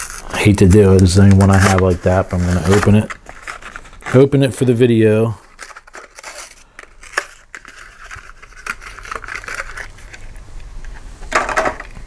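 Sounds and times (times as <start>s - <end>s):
plastic blister pack crinkling: 0.0s - 11.0s.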